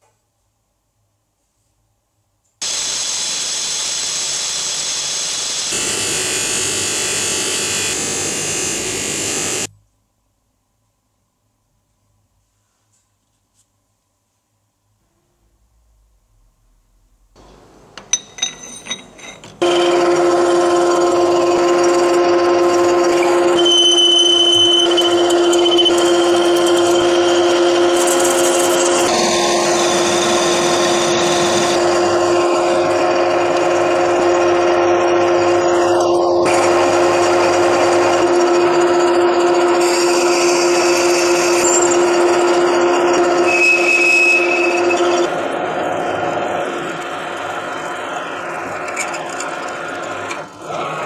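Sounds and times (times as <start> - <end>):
power tool running: 2.6 - 9.7, 19.6 - 51.0.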